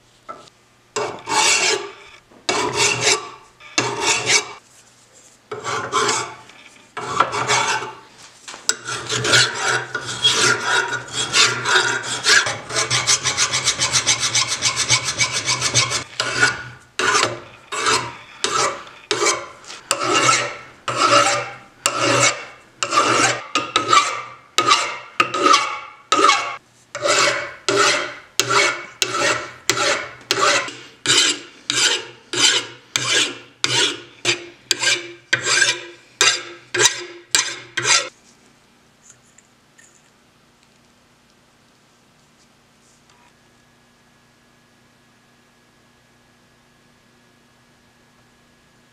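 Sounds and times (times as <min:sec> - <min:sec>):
file scraping steel: 0:00.3 - 0:04.6, 0:05.5 - 0:08.1, 0:08.7 - 0:38.2.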